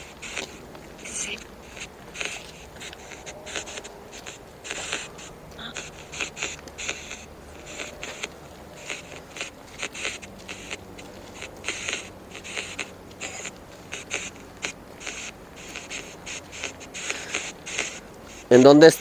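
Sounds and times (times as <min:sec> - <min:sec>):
footsteps crunching on gravel: 0:00.0 - 0:05.6, 0:09.6 - 0:13.9.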